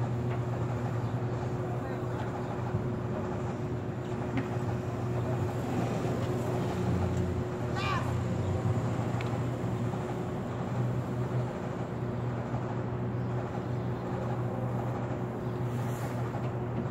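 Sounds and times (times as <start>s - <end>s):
constant hum: 0.0s - 16.9s
traffic rumble: 0.0s - 16.9s.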